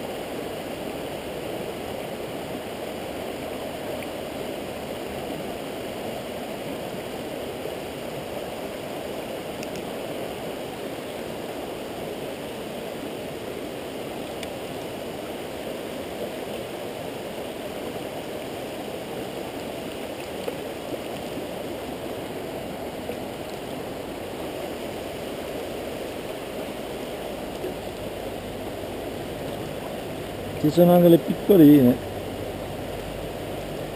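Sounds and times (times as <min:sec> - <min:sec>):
river running over stones: 0:00.0 - 0:33.9
faint tick: 0:09.6 - 0:09.9, 0:14.4 - 0:14.6.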